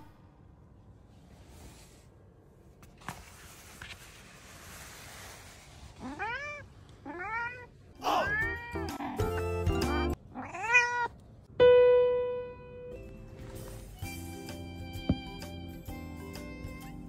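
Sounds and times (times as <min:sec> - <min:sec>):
cat meowing: 0:06.0 - 0:09.4, 0:10.3 - 0:11.1.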